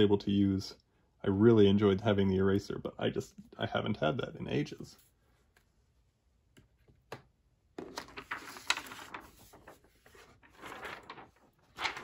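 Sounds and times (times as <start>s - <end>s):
paper rustling: 7.8s - 12.0s.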